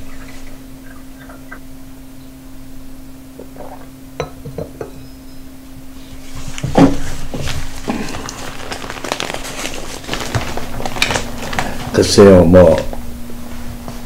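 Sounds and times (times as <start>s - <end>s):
steady low hum: 0.0s - 14.0s
paper handling: 6.4s - 12.9s.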